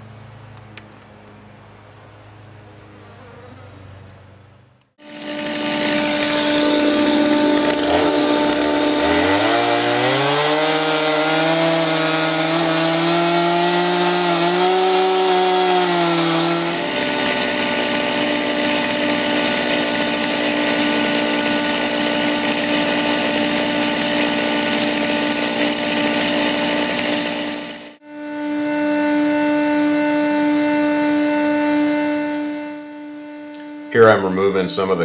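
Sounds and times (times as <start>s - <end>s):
chainsaw cutting wood: 5.0s - 28.1s
vacuum whine and air rush: 27.2s - 34.0s.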